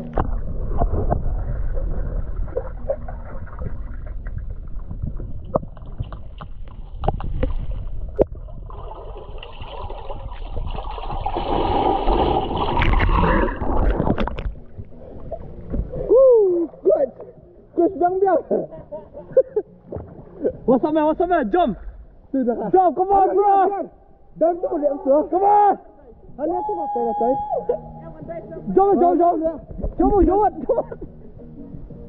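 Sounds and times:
muffled underwater rumble: 0.0 - 11.2, 12.7 - 17.8
underwater bubbling and clicks: 0.0 - 16.1.

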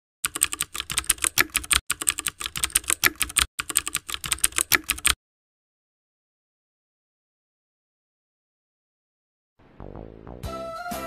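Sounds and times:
keyboard key clicks: 0.3 - 5.2.

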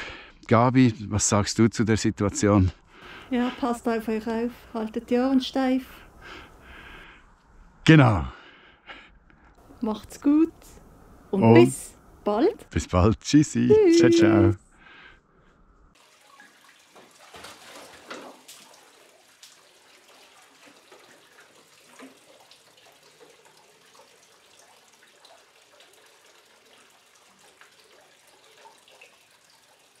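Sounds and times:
tap water trickling into bucket: 16.0 - 30.0
water splashes: 16.0 - 30.0.

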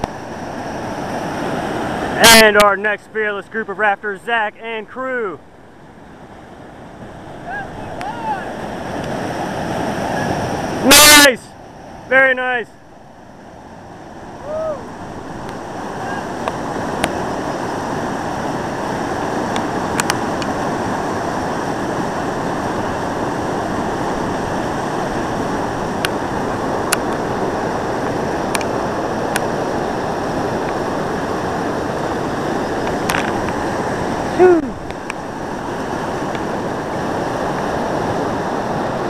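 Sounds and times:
whitewater rapid rushing: 0.0 - 39.0
person calling out: 7.4 - 8.5, 10.8 - 11.4, 14.4 - 14.9, 34.3 - 34.8
faint sharp ticks: 19.5 - 20.5.

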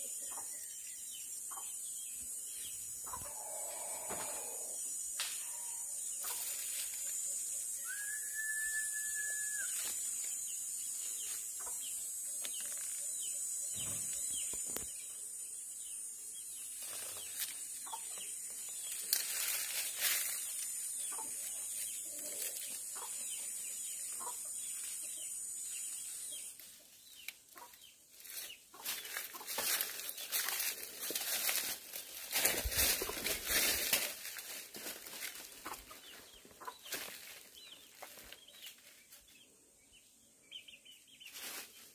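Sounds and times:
high insect drone: 0.0 - 26.8
whistled note: 7.9 - 9.8
leaves brushing against phone: 28.2 - 35.4, 41.2 - 41.9.

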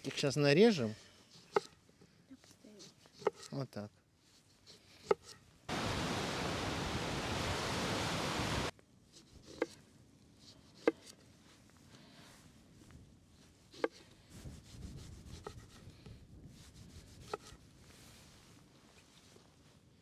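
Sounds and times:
loud steady hiss: 5.7 - 8.7.

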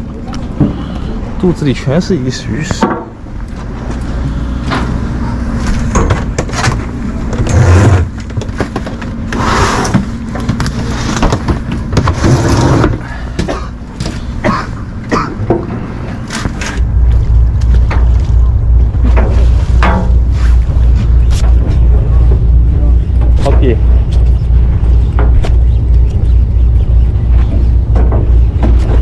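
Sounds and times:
steady low drone: 0.0 - 29.0
knocks and clatter: 15.4 - 29.0.

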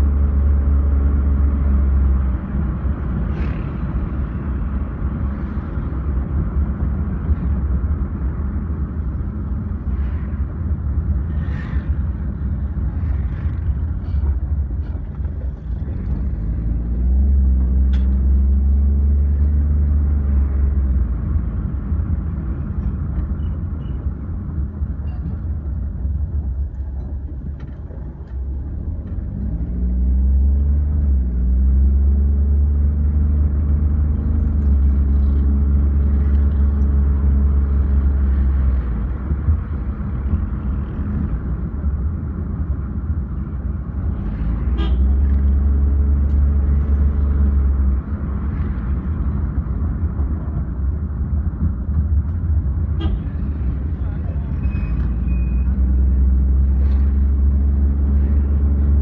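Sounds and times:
car engine and road rumble: 0.0 - 59.0
sharp traffic sounds: 42.8 - 51.1, 51.7 - 59.0.

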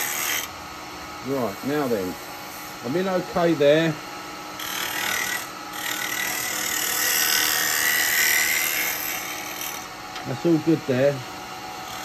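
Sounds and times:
lathe tool scraping wood: 0.0 - 0.5, 4.6 - 11.2, 11.8 - 12.0.

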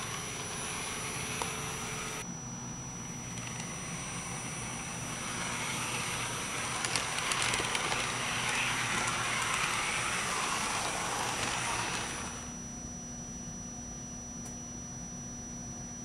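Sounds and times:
model train motor whirring: 0.0 - 2.2, 3.1 - 12.5.

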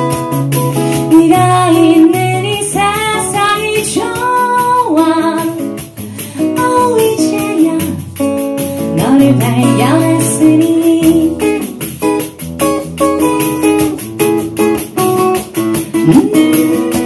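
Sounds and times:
acoustic guitar: 0.0 - 17.0
woman singing: 0.9 - 12.0, 15.9 - 17.0.

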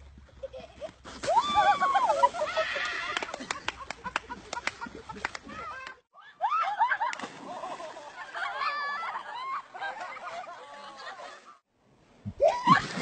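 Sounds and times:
people laughing and shrieking: 1.2 - 3.6, 5.4 - 11.6.

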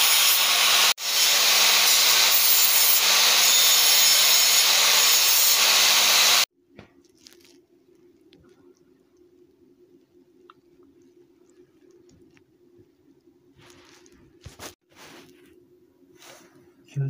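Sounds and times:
angle grinder grinding metal: 0.0 - 6.5.

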